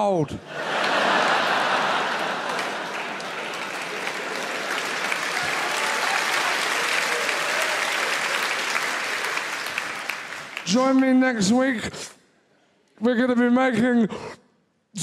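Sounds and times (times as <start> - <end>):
audience applauding: 0.5 - 11.3.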